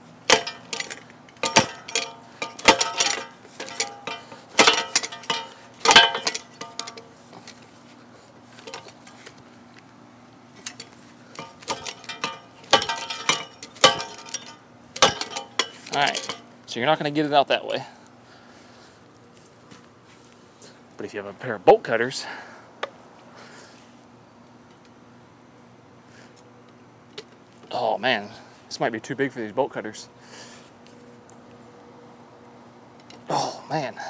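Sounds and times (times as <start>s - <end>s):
metal lock clanking on bicycle: 0.3s - 7.6s, 10.6s - 16.5s.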